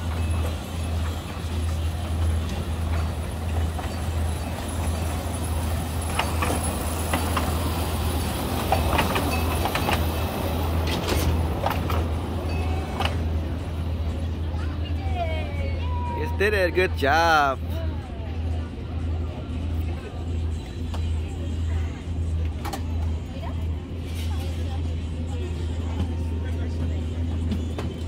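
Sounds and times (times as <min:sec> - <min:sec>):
train cars clacking: 0:00.0 - 0:14.9
ride train hum: 0:00.0 - 0:28.0.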